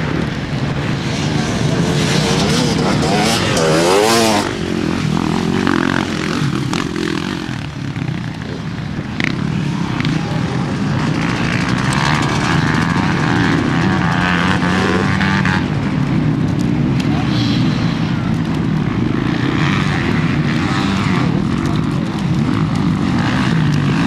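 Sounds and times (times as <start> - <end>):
dirt bike engines revving: 0.0 - 24.0.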